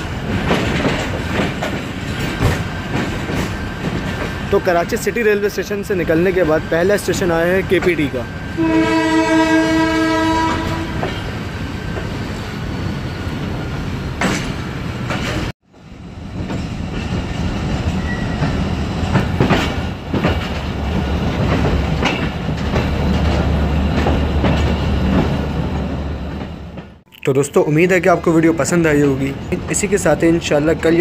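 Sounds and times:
wheels clacking over rail joints: 0:00.0 - 0:08.2, 0:09.0 - 0:12.2, 0:13.3 - 0:15.5, 0:16.3 - 0:27.0
train coaches rolling on track: 0:00.0 - 0:31.0
train horn: 0:08.6 - 0:11.2.

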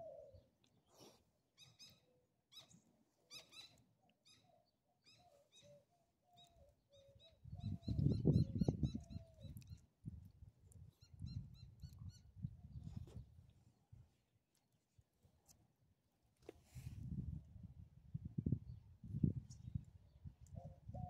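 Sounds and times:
dove cooing: 0:00.0 - 0:00.5
small birds chirping: 0:00.0 - 0:13.3.

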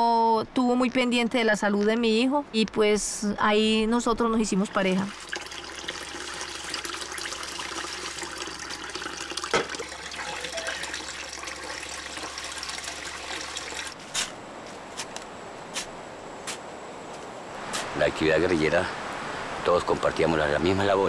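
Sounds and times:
tap water running into sink: 0:05.1 - 0:14.0.

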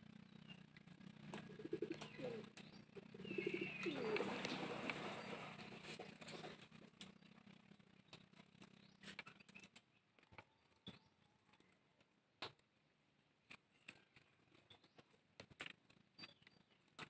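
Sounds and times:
chicks rustling in pine needles: 0:03.0 - 0:06.7.

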